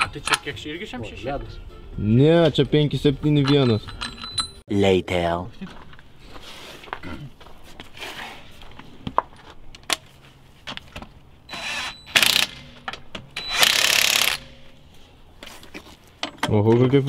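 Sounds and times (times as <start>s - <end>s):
metal bolts clinking: 0.0s - 0.6s, 3.2s - 4.6s, 16.1s - 16.8s
impact wrench driving bolts: 11.5s - 14.8s.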